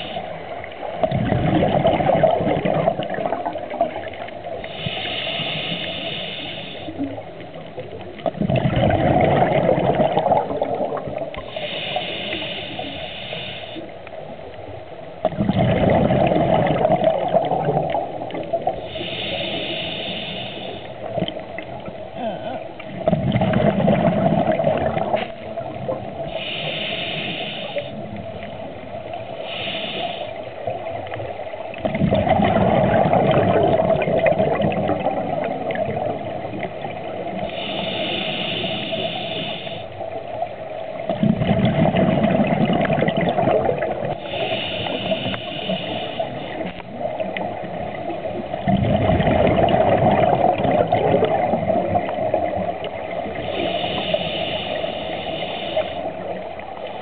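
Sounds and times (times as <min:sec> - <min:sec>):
regulator inhalation hiss: 0:00.0 - 0:00.5, 0:04.6 - 0:07.0, 0:11.4 - 0:14.0, 0:18.8 - 0:21.1, 0:26.2 - 0:28.0, 0:29.3 - 0:30.8, 0:37.4 - 0:40.1, 0:44.2 - 0:46.8, 0:53.4 - 0:56.4
rush of exhaled bubbles: 0:00.0 - 0:13.1, 0:15.2 - 0:39.8, 0:40.9 - 0:56.8.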